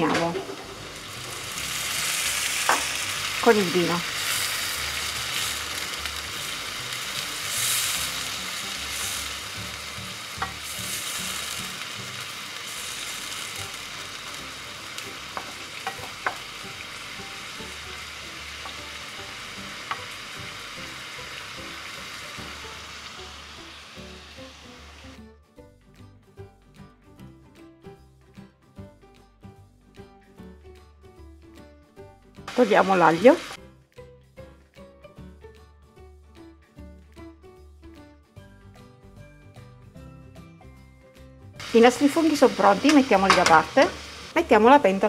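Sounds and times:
mushrooms sizzling in a frying pan: 0:00.0 - 0:25.2, 0:32.4 - 0:33.6, 0:41.6 - 0:45.0.

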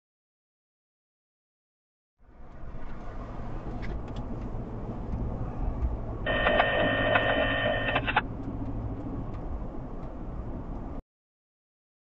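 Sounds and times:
car road and engine rumble: 0:02.2 - 0:11.0
electronic data tones: 0:06.3 - 0:08.2.

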